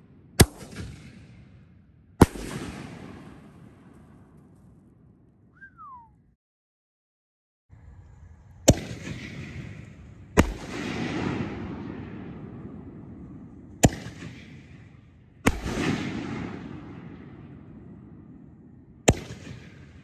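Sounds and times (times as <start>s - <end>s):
firework bangs: 2.2s - 4.2s, 8.7s - 18.4s.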